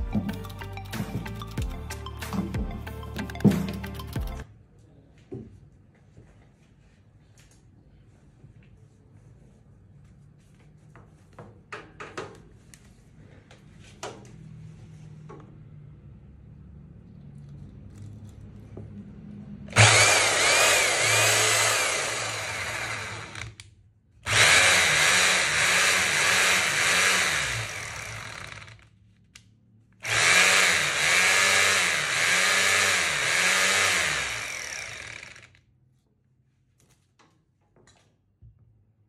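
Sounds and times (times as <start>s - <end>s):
rotary hammer drill running: 19.7s - 23.6s, 24.3s - 28.9s, 30.0s - 35.6s.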